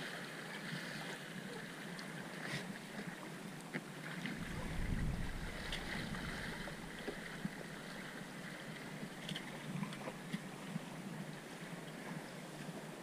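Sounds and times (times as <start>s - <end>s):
water rushing along a hull: 0.0s - 13.0s
wind buffeting microphone: 4.3s - 9.2s.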